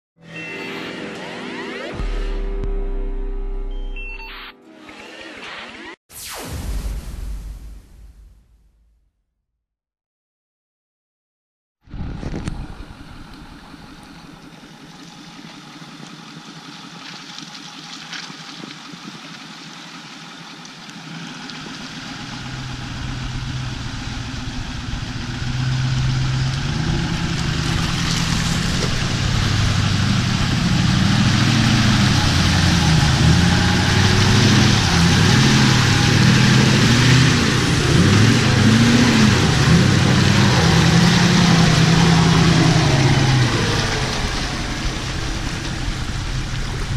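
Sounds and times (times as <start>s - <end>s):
muddy water splashing: 11.9s - 46.9s
diesel truck engine revving: 21.0s - 46.9s.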